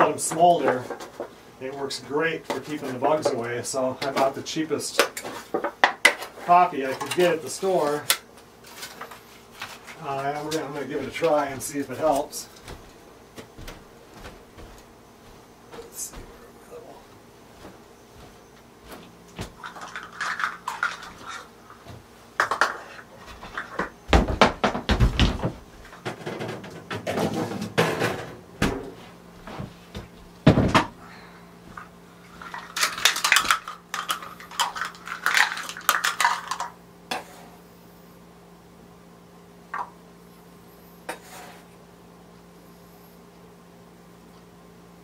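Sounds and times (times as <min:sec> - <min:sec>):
loud knocks: 0:24.1 - 0:29.0.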